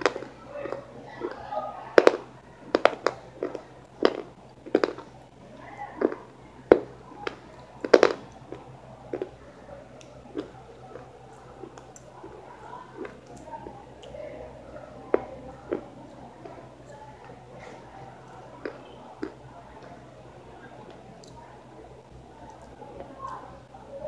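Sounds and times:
crunchy chewing: 0:02.2 - 0:14.3.

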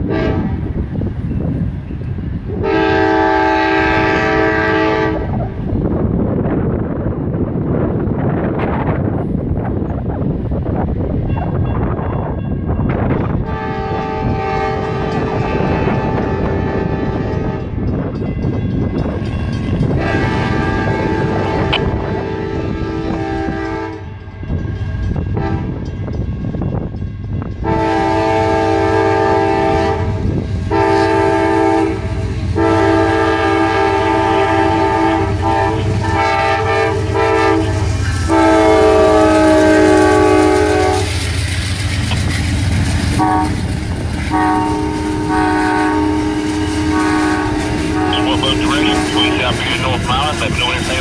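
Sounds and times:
train air horn blasts: 0:00.0 - 0:00.7, 0:02.5 - 0:05.4, 0:13.4 - 0:17.8, 0:19.9 - 0:24.1, 0:25.3 - 0:25.9, 0:27.6 - 0:41.2, 0:43.1 - 0:51.0
passing train rumble: 0:00.0 - 0:51.0.

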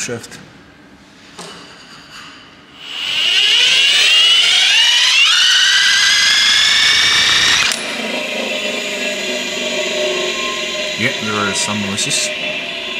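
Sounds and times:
power tool whine: 0:02.8 - 0:12.9.

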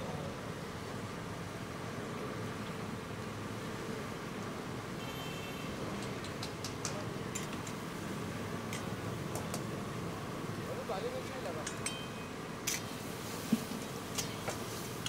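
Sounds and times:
light sharp ticks: 0:06.0 - 0:07.8, 0:08.7 - 0:09.7
kitchen cooking noise: 0:11.2 - 0:15.0.

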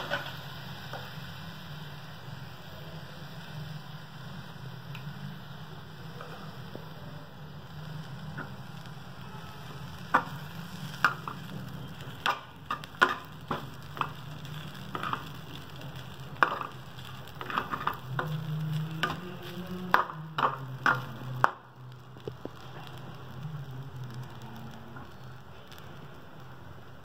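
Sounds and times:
metal spatula scraping a pan: 0:12.2 - 0:15.4, 0:16.4 - 0:21.1.

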